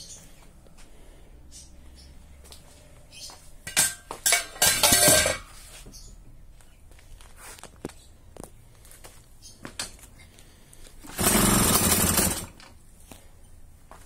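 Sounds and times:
metal clanks: 3.6 - 5.6
metal rattling clatter: 3.7 - 5.5.

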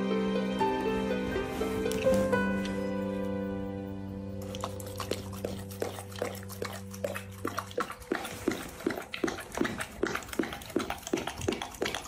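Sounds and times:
soft background music: 0.0 - 12.0
dog chewing wet food: 4.4 - 12.0.

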